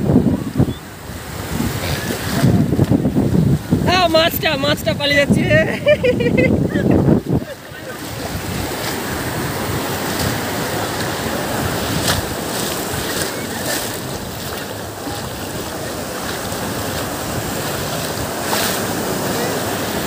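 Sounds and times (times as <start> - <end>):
waves washing in: 0.0 - 20.0
sharp water splashes: 7.7 - 20.0.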